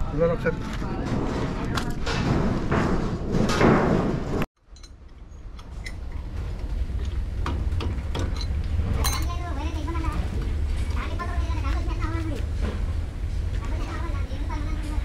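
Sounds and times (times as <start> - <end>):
noisy rumble: 0.0 - 15.0
metal parts clinking: 4.7 - 5.2, 8.2 - 9.3.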